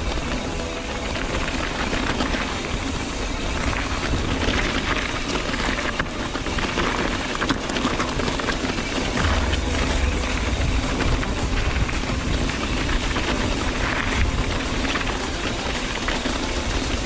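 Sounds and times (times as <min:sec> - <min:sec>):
bike clattering and rattling: 0:00.0 - 0:17.0
tyres and wind rushing: 0:08.6 - 0:15.2.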